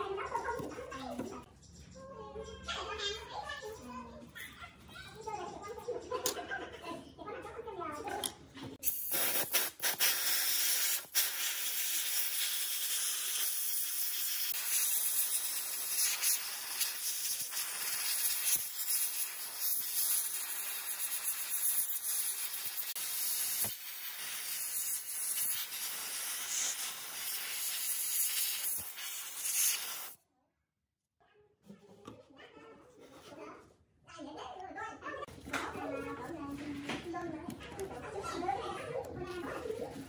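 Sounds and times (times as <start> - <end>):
spray wand hissing: 8.8 - 30.2.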